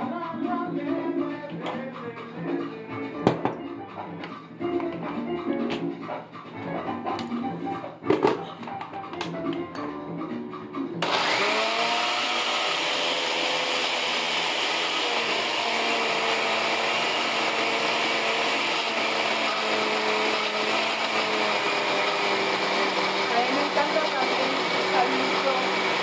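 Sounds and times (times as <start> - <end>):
blender motor running: 11.0 - 26.0.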